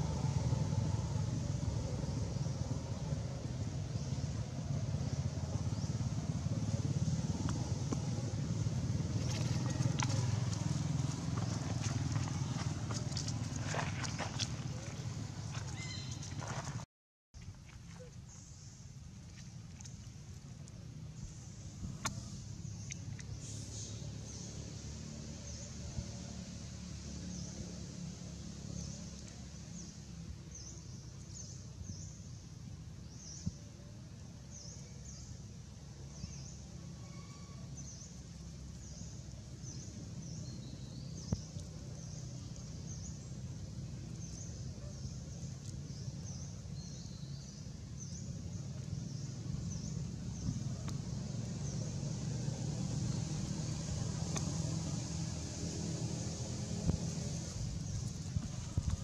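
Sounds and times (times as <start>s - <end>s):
steady low rumble: 0.0s - 16.8s, 17.4s - 24.7s, 37.8s - 59.0s.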